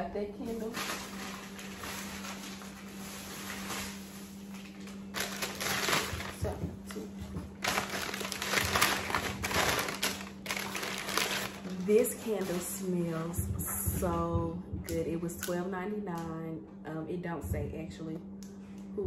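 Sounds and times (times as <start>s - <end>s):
packing paper crinkling: 0.4s - 6.6s, 7.5s - 12.8s.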